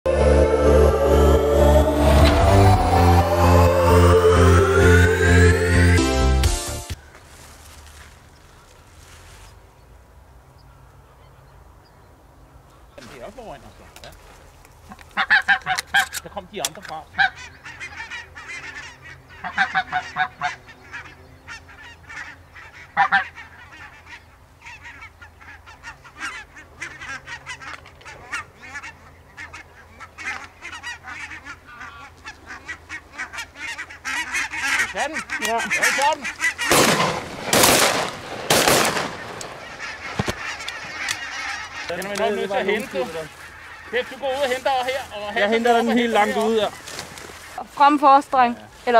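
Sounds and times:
geese calling: 0.1s - 7.2s, 14.8s - 48.9s
loud rushing bursts: 36.6s - 40.1s.

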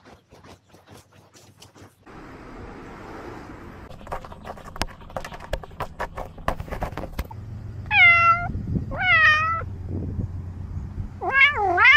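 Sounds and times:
cat meowing: 7.9s - 9.7s, 11.2s - 11.9s.

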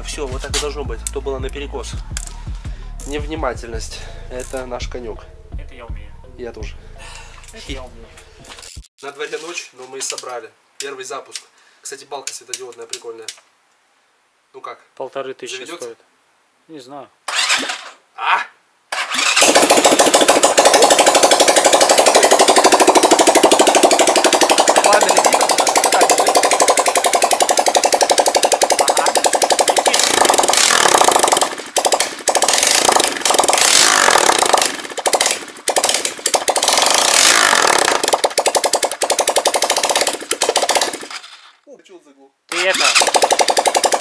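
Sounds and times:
motorcycle engine running: 19.3s - 41.2s
engine revving with throttle blips: 32.5s - 35.4s, 36.5s - 38.2s.

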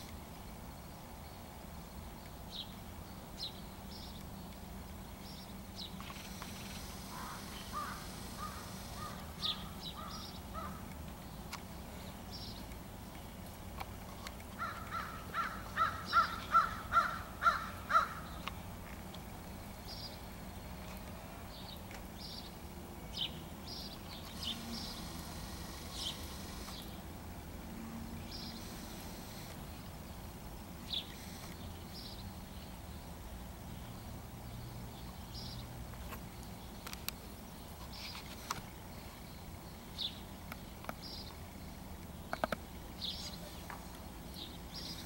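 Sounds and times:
crows cawing: 7.1s - 10.9s, 14.6s - 18.4s.

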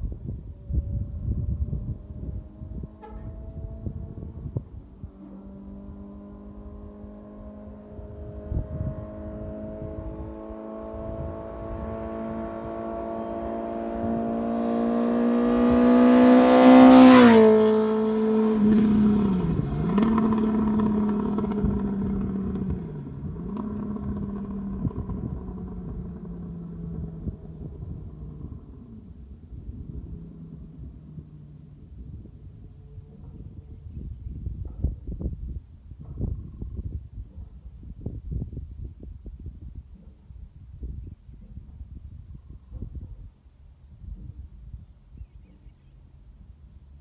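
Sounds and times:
motorcycle engine passing by: 0.2s - 35.2s.

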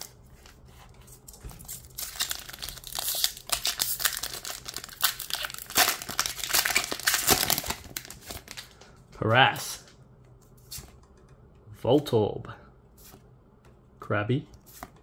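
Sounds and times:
foil wrapper tearing and crinkling: 1.6s - 8.8s.

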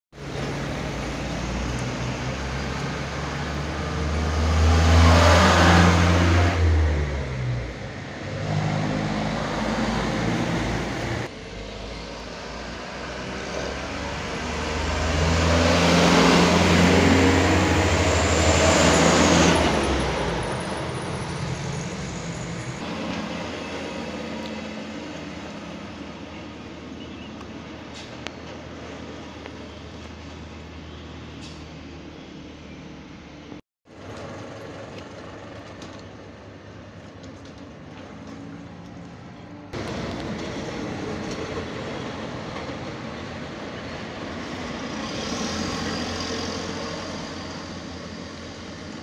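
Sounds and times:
trucks passing: 0.2s - 49.0s.

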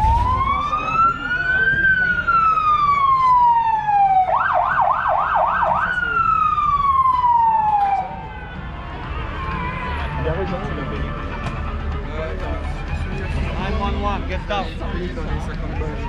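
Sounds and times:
police siren wailing and yelping: 0.0s - 8.2s.

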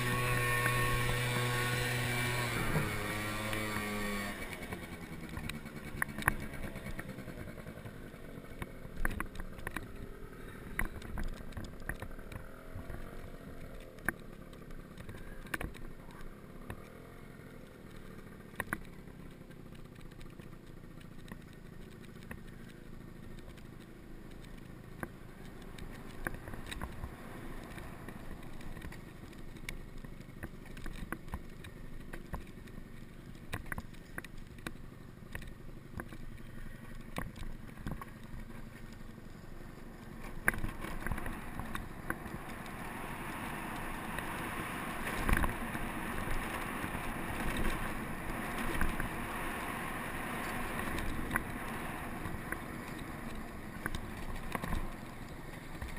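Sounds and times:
scooter road and wind noise: 0.0s - 55.9s.

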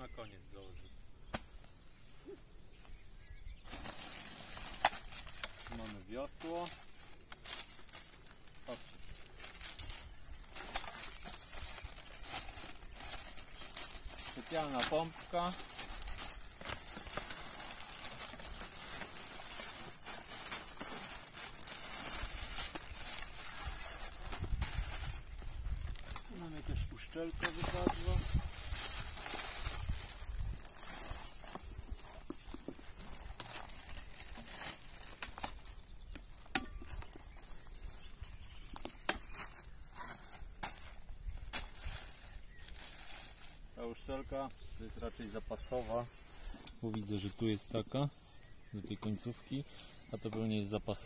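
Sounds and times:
plastic packaging crinkling: 3.7s - 43.6s.

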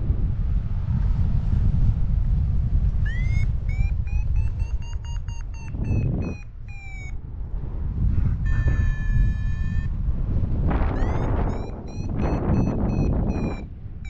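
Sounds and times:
wind rushing over microphone: 0.0s - 14.0s
variometer beeping: 3.0s - 7.2s, 8.4s - 10.0s, 10.7s - 13.7s.

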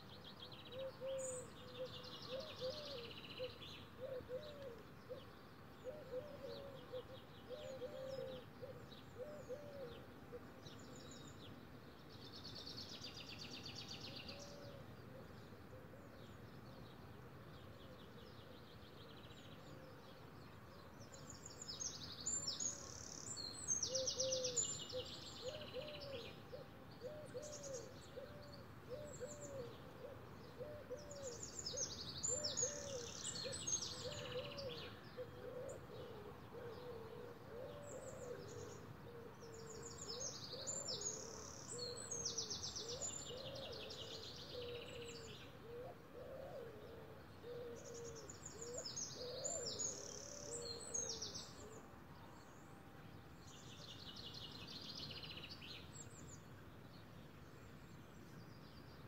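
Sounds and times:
dove cooing: 0.7s - 10.5s, 23.9s - 31.4s, 32.3s - 50.8s.

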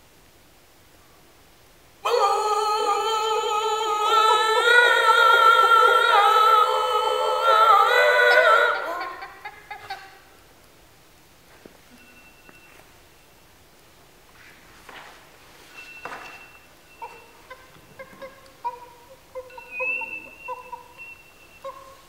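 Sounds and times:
man's loud wavering held cry: 2.0s - 9.5s.

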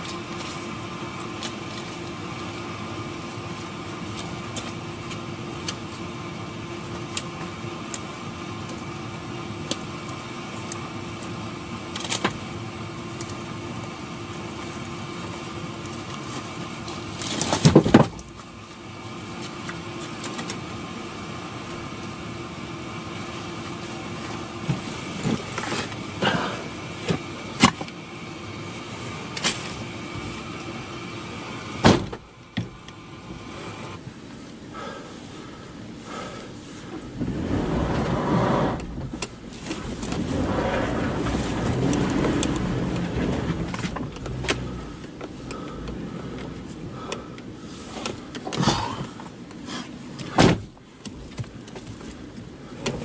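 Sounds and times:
idling vehicle hum: 0.0s - 53.0s.

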